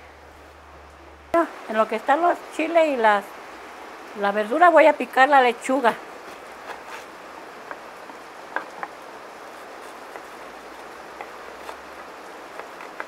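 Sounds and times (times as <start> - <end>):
steady background hiss: 0.0 - 13.0
blade tapping wooden board: 7.6 - 9.0, 12.5 - 13.0
knife cutting lettuce: 9.5 - 13.0.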